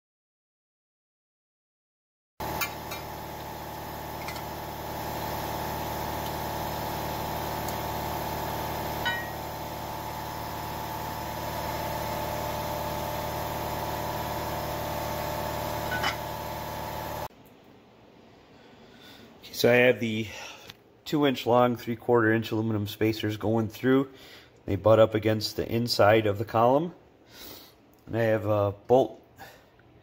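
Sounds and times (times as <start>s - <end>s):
machine motor humming: 2.4s - 17.3s.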